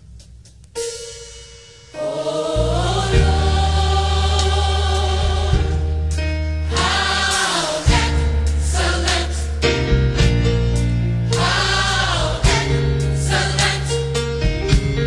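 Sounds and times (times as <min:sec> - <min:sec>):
gospel choir singing: 0:01.9 - 0:14.4
deep bass line: 0:02.6 - 0:07.3, 0:07.9 - 0:15.0.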